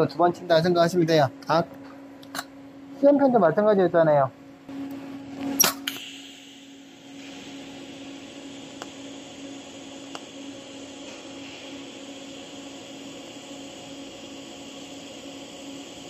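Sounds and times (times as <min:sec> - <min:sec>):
welding arc hissing: 0:05.6 - 0:16.0.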